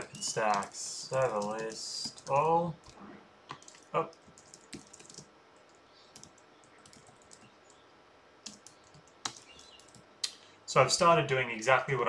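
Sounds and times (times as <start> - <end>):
computer keyboard keystrokes: 0.0 - 5.3, 6.1 - 7.8, 8.4 - 10.0.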